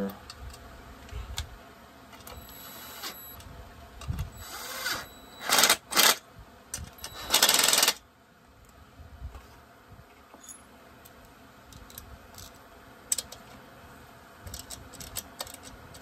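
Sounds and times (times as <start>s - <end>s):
cordless drill driving screws: 2.3s - 3.4s, 4.4s - 6.2s, 7.0s - 8.0s.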